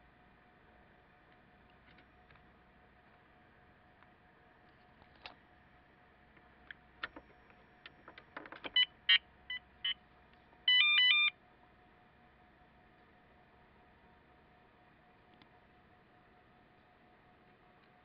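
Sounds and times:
short electronic beeps: 0:10.7 - 0:11.3.

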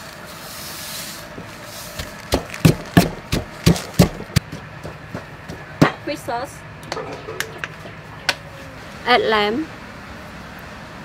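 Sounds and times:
pestle pounding in a mortar: 0:02.0 - 0:06.1.

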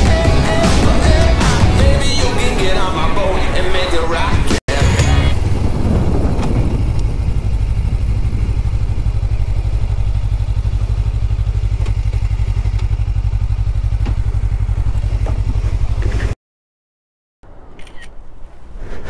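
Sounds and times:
motorcycle engine running: 0:04.7 - 0:16.4.

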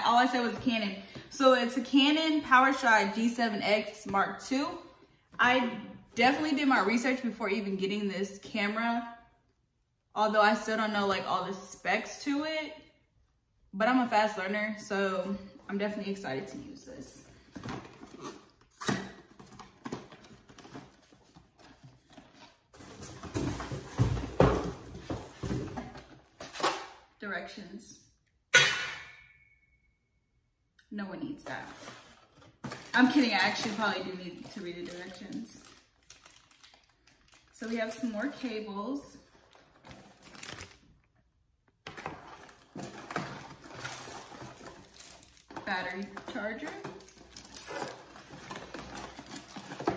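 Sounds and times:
cardboard packaging rustling: 0:17.4 - 0:26.7, 0:31.5 - 0:38.4, 0:39.2 - 0:41.0, 0:41.9 - 0:49.9.

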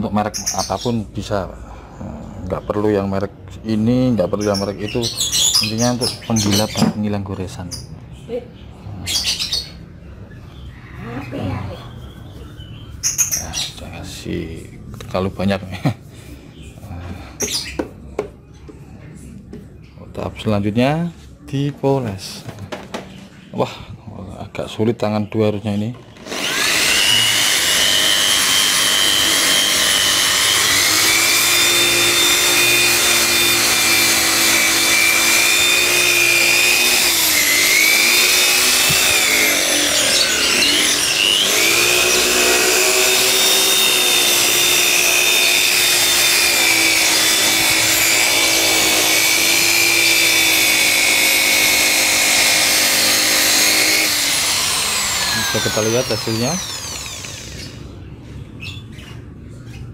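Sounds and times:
electric polisher motor whine: 0:26.2 - 0:57.8.

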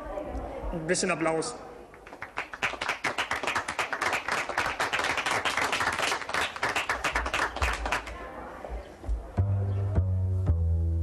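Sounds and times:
hands clapping: 0:01.9 - 0:08.2.

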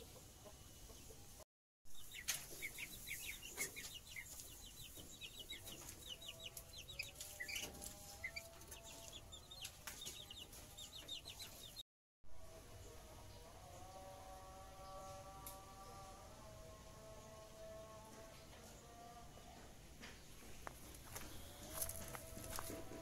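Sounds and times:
chicks peeping: 0:00.0 - 0:01.4, 0:02.0 - 0:11.8, 0:20.2 - 0:23.0.

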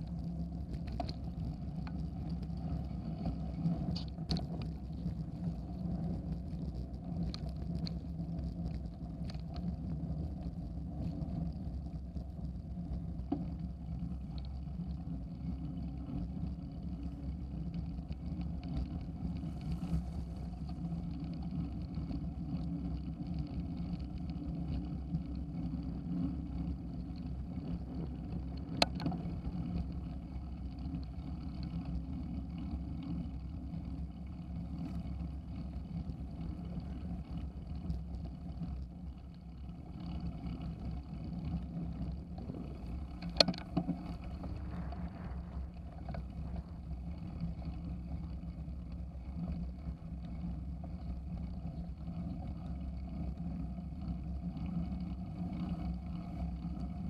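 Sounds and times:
bicycle tyres rumbling on gravel: 0:00.0 - 0:57.0
sharp clicks and rattles: 0:42.8 - 0:46.8.

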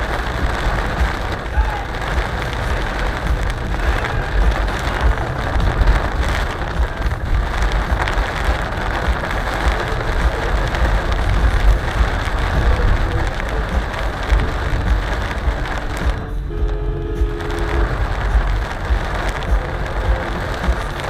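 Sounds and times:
car rumbling on road: 0:00.0 - 0:21.0
heavy rain on car roof: 0:00.0 - 0:21.0.

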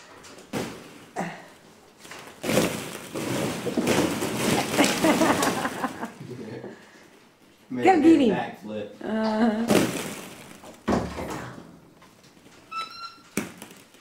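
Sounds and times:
plastic balls clattering: 0:00.0 - 0:06.2, 0:09.6 - 0:14.0.

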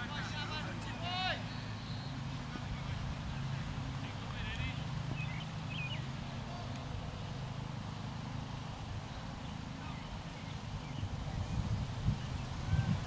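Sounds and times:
steady low rumble: 0:00.0 - 0:13.0
faint bird chirps: 0:01.4 - 0:02.2.

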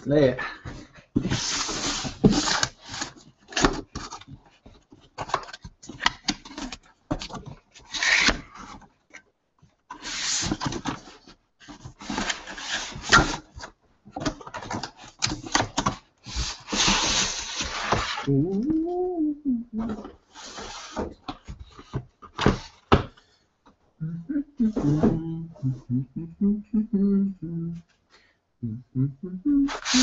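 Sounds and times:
cardboard scraping and rubbing: 0:01.2 - 0:04.3, 0:07.8 - 0:08.8, 0:09.9 - 0:13.7, 0:16.2 - 0:18.3, 0:20.0 - 0:22.8, 0:29.7 - 0:30.0.

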